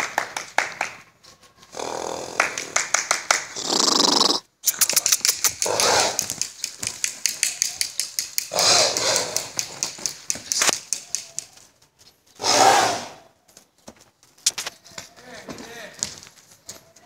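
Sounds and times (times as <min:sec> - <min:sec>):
horse snorting: 0:01.7 - 0:02.7, 0:03.5 - 0:06.4, 0:08.5 - 0:10.0, 0:12.4 - 0:13.3
fast sharp clicks: 0:04.6 - 0:11.7.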